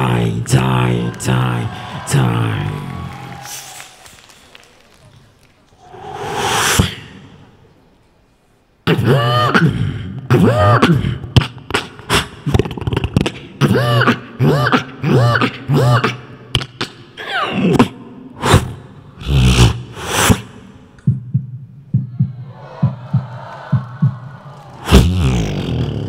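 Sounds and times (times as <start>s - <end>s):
person beatboxing into a microphone: 6.0s - 7.4s, 8.9s - 26.0s.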